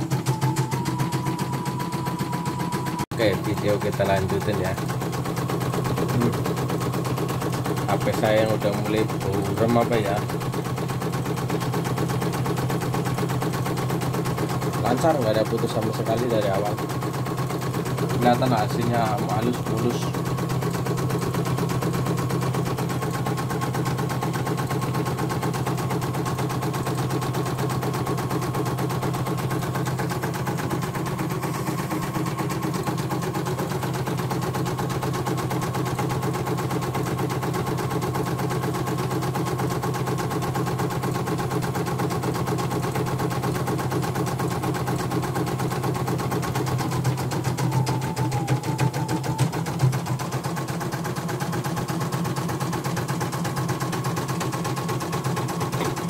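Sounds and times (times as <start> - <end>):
embroidery machine needle clattering: 0.0 - 56.0
motor hum: 0.0 - 56.0.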